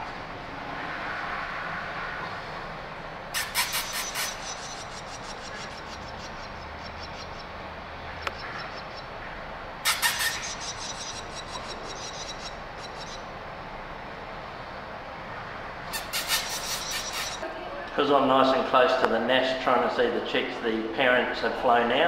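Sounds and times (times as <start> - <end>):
steady background hum: 0.0 - 22.0
nestlings high-pitched chirping: 3.4 - 7.6, 8.2 - 9.2, 9.8 - 13.3, 15.9 - 17.4.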